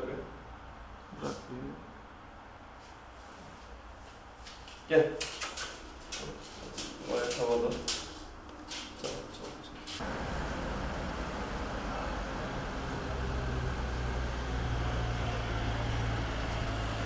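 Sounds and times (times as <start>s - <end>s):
street traffic: 8.2s - 17.0s
vehicle engine humming: 9.9s - 17.0s.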